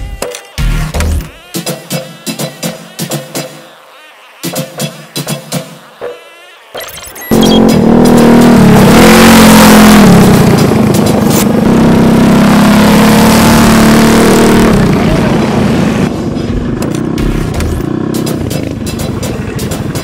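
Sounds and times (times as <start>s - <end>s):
small engine revving: 6.1s - 16.1s.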